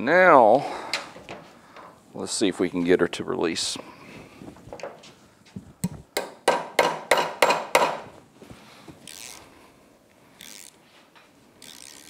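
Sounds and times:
ratchet clicking: 0:09.1 - 0:09.4, 0:10.4 - 0:10.8, 0:11.6 - 0:12.0.

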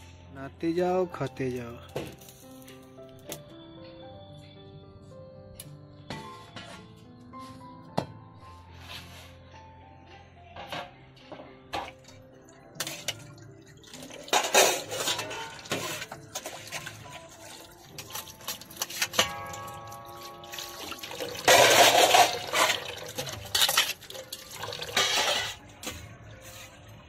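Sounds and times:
tap water splashing on plates: 0:12.8 - 0:25.5
steel utensils clinking: 0:12.8 - 0:25.7.

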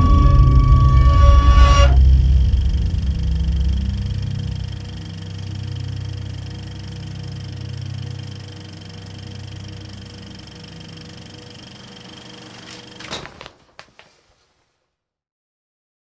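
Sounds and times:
low drone: 0:00.0 - 0:12.8
high steady tones: 0:00.0 - 0:13.1.

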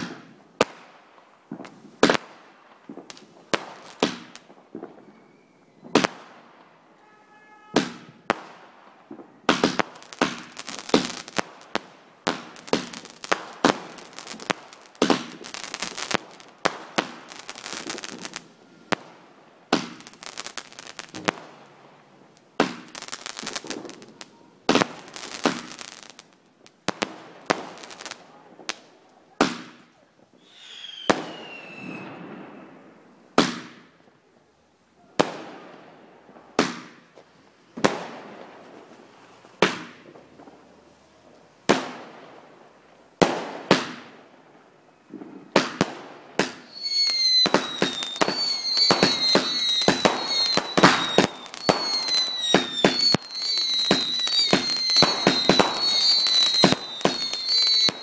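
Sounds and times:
firework bangs: 0:00.0 - 0:00.9, 0:01.5 - 0:34.0, 0:35.2 - 0:42.5, 0:43.2 - 0:58.0
firework whistle: 0:04.9 - 0:06.2, 0:06.8 - 0:08.3, 0:30.4 - 0:32.8, 0:46.4 - 0:58.0.

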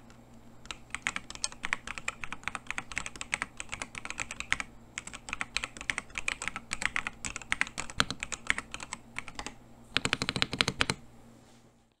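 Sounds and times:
mechanical keyboard typing: 0:00.6 - 0:11.0.

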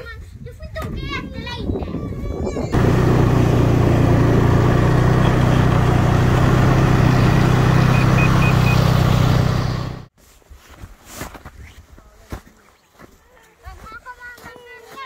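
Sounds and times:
snowmobile engine droning: 0:02.8 - 0:10.1
short faint high beeps: 0:07.9 - 0:08.9.

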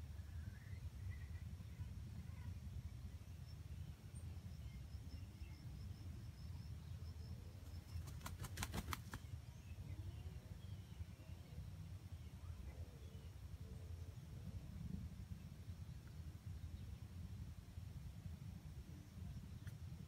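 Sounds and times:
faint high chirp: 0:00.0 - 0:08.4.

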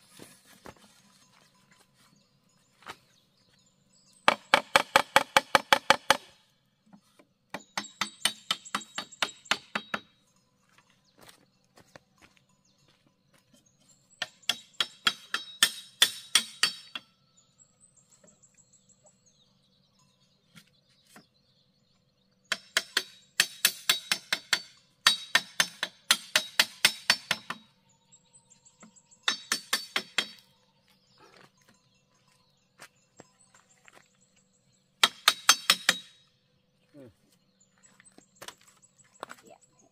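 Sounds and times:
machete striking bamboo: 0:04.3 - 0:06.4, 0:14.2 - 0:17.1, 0:22.5 - 0:27.7, 0:29.3 - 0:30.5, 0:35.0 - 0:36.2.

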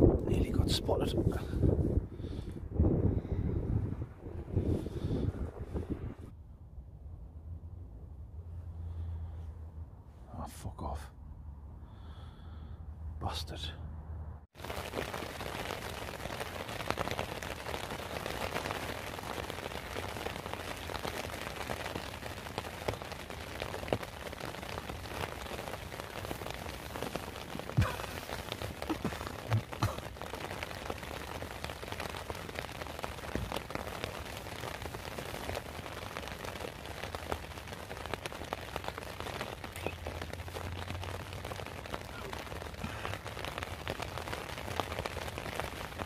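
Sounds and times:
rain pattering: 0:14.5 - 0:46.0.

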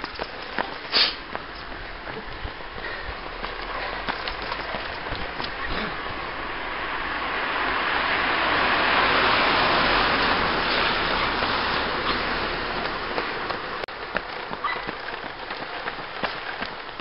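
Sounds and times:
tyres hissing on wet road: 0:00.8 - 0:01.3, 0:05.3 - 0:13.8.

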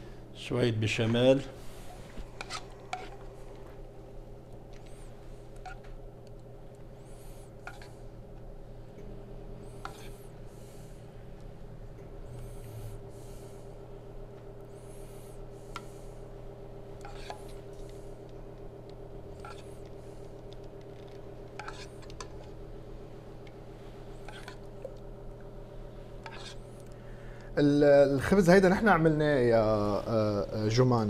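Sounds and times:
steady low hum: 0:00.0 - 0:31.0
metal ladle scraping saucepan: 0:17.0 - 0:17.4, 0:21.6 - 0:22.0, 0:26.2 - 0:26.6.

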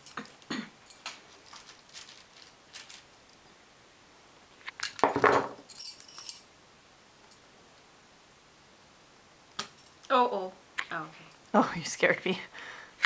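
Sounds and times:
high metallic jingle: 0:05.6 - 0:06.5.

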